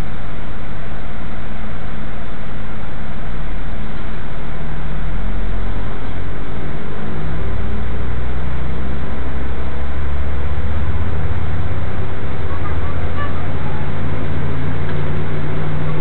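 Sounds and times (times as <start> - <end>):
train rumbling: 0.0 - 16.0
faint gliding tones: 4.5 - 16.0.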